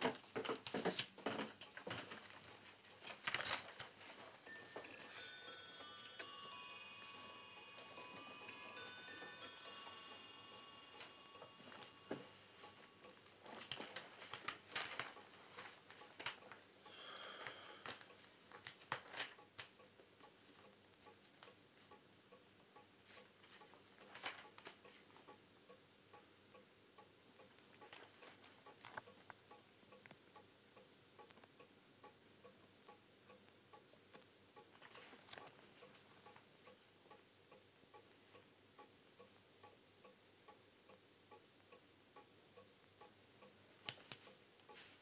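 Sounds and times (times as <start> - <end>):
clock ticking: 0.0 - 45.0
newspaper pages rustling: 2.0 - 4.2, 13.4 - 16.7, 17.9 - 19.4, 23.4 - 24.8.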